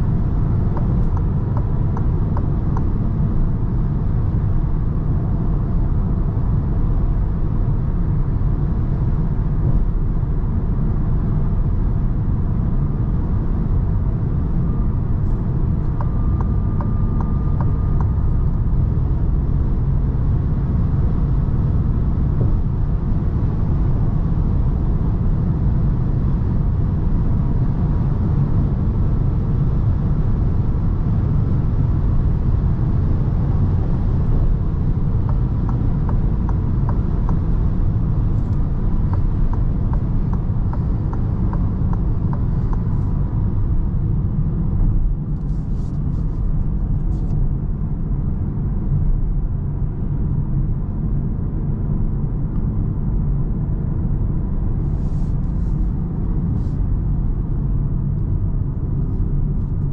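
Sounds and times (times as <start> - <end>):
road and tyre rumble: 0.0 - 59.9
car engine humming: 13.6 - 24.6, 31.0 - 47.6.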